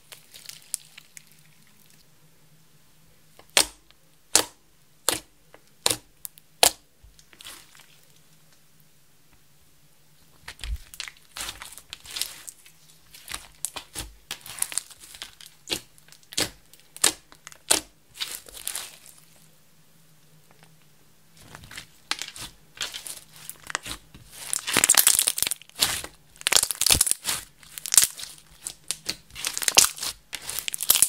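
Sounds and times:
slime popping and crackling: 0:10.5 - 0:19.2, 0:21.4 - 0:31.0.

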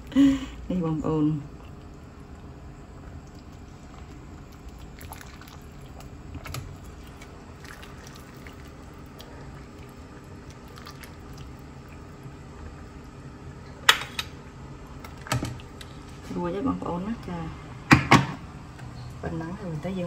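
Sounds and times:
low steady background noise: 0:00.0 - 0:20.0.

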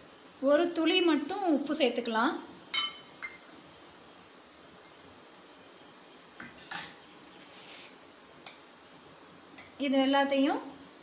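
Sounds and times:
tumbler clinking against steel bowl: 0:02.7 - 0:03.5.

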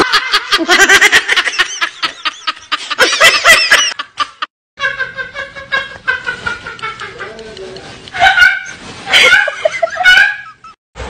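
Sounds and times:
exaggerated giggling laughter: 0:00.0 - 0:10.8.

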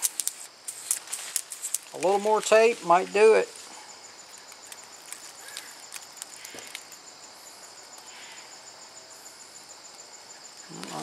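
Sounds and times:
high fast-pulsing insect chirp: 0:00.0 - 0:11.0.

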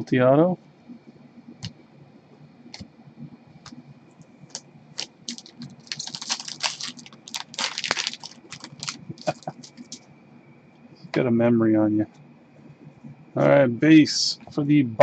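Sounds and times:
cards clicking and rustling: 0:04.5 - 0:10.0.

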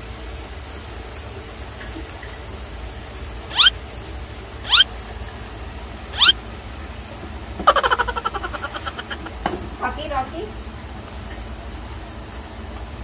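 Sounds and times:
dog whining squeaks: 0:03.5 - 0:03.7, 0:04.6 - 0:04.9, 0:06.1 - 0:06.4, 0:07.7 - 0:09.3.

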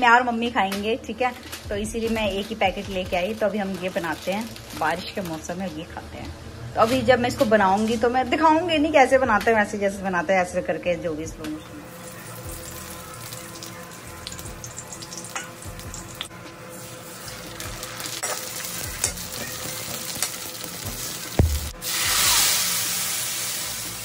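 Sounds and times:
noodles sizzling in hot fat: 0:02.4 - 0:05.9, 0:11.8 - 0:24.0
milk hissing in hot pan: 0:12.0 - 0:24.0
sharp knock: 0:21.4 - 0:21.8.

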